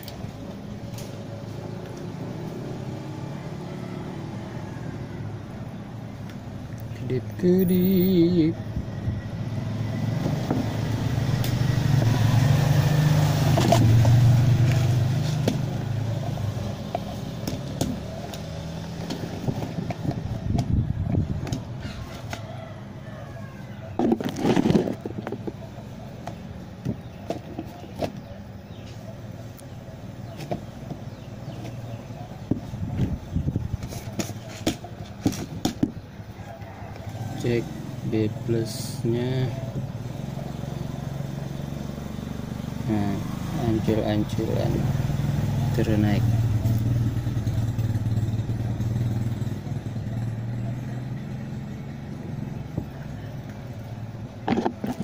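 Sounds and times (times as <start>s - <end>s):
handling noise rustling and knocks: 16.8s - 22.4s, 23.9s - 29.0s, 30.2s - 36.1s, 54.4s - 55.0s.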